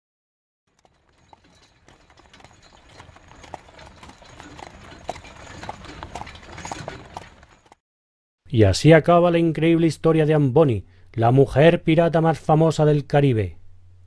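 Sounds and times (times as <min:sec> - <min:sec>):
horses' hooves clip-clopping: 0:00.7 - 0:07.8.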